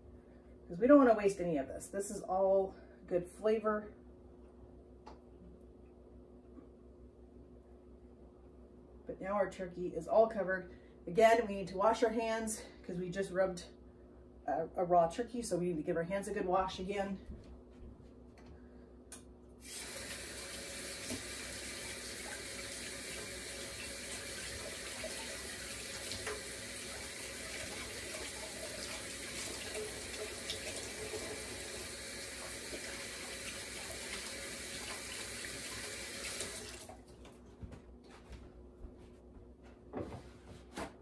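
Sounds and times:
faucet running: 19.6s - 37.0s.

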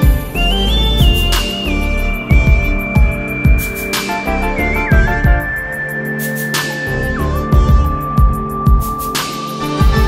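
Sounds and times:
deep kick drums: 0.0s - 3.9s, 4.8s - 5.6s, 7.5s - 9.1s
whistle-like lead note: 0.0s - 9.7s
electronic music: 0.0s - 10.0s.

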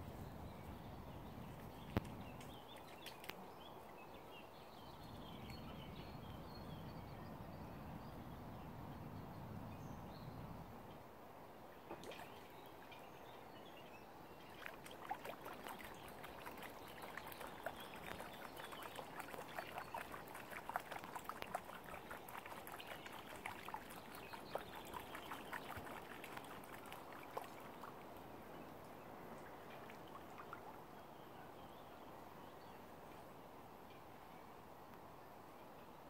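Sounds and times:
small splashes and drips: 1.5s - 3.6s, 11.8s - 13.1s, 14.4s - 31.0s
shallow water lapping: 14.3s - 31.2s.

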